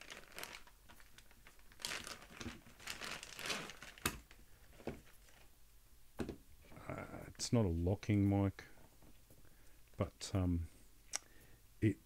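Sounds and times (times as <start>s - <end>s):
plastic bag crinkling: 0.0s - 5.5s.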